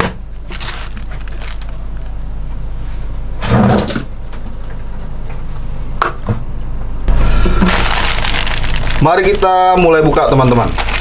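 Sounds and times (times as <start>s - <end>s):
steady low hum: 0.0s - 11.0s
hands handling plastic-wrapped parcel: 0.4s - 2.1s, 7.6s - 11.0s.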